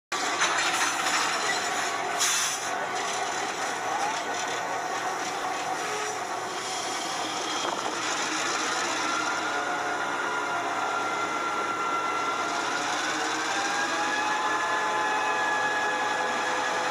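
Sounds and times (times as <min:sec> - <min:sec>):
model train motor and wheel rattle: 0:00.2 - 0:09.6, 0:12.4 - 0:14.0.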